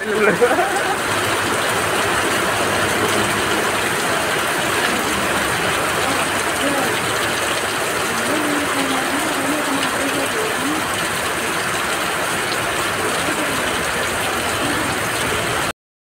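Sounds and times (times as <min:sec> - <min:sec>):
heavy rain pouring: 0:00.0 - 0:15.8.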